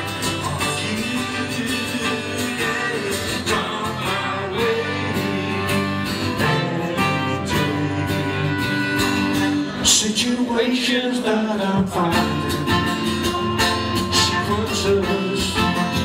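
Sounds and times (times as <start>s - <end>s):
trumpet: 0.0s - 9.8s
strummed acoustic guitar: 0.0s - 16.0s.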